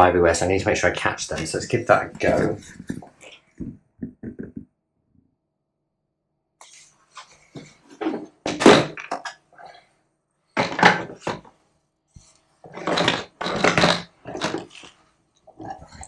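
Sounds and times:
plastic knocks and scrapes: 1.3 - 4.6, 12.6 - 15.0.

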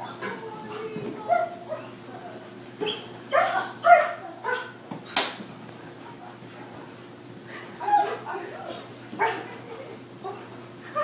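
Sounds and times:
dog giving high excited cries: 2.8 - 4.8.

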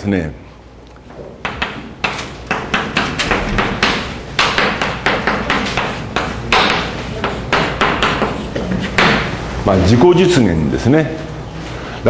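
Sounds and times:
chalk tapping and scraping: 1.4 - 9.3.

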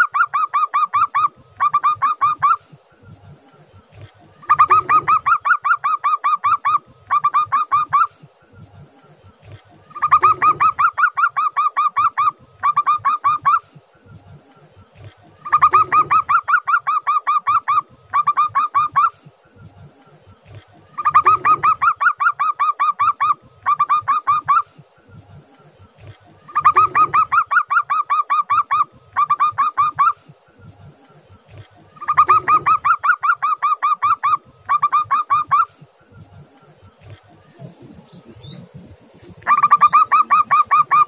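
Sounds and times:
dove cooing: 3.9 - 8.3, 9.4 - 13.8, 15.0 - 19.3, 20.5 - 24.9, 26.0 - 30.3, 31.4 - 35.9, 37.0 - 41.0.

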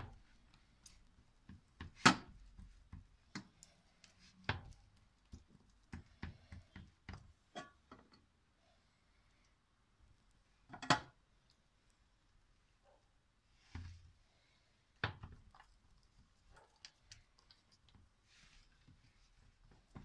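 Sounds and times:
fingers patting dough on metal tray: 0.0 - 8.1, 14.9 - 20.0.

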